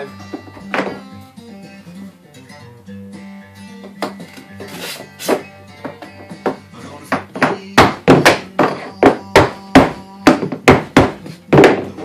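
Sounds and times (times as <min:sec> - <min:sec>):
mallet knocking on plastic pipe: 0:05.8 - 0:12.0.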